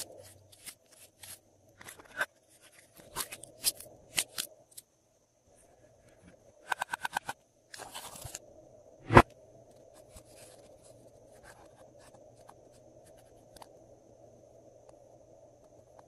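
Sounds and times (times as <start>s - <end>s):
plastic palette rustling: 0.0s - 4.5s, 7.8s - 8.4s.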